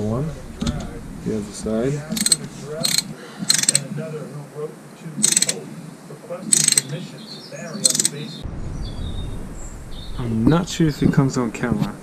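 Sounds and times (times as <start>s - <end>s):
socket ratchet clicking: 2.2s - 3.8s, 5.2s - 5.6s, 6.5s - 6.9s, 7.9s - 8.2s.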